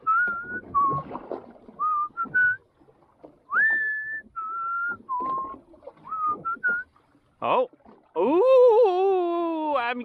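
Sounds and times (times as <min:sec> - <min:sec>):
person whistling a tune: 0:00.0 - 0:01.0, 0:01.8 - 0:02.6, 0:03.5 - 0:06.9.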